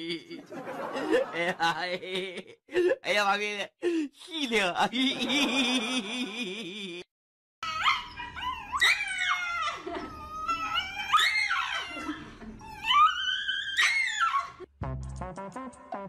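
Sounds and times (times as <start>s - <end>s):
dog screaming: 7.6s - 9.9s, 10.5s - 12.2s, 12.8s - 14.6s.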